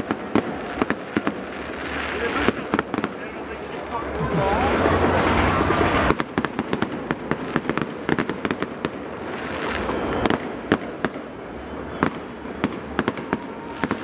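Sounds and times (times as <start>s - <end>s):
fireworks popping and crackling: 0.0s - 14.0s
loud firework bangs: 0.0s - 14.0s.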